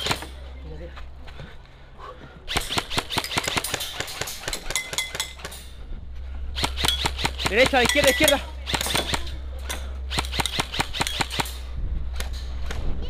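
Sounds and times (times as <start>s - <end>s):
airsoft rifle shots cracking: 2.5s - 5.6s, 6.6s - 11.6s.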